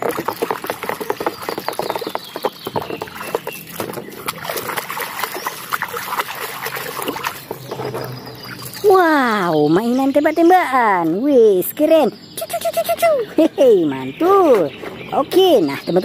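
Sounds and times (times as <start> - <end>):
scrubbing plastic toy: 0.0 - 8.9
hand splashing in muddy water: 3.0 - 8.8.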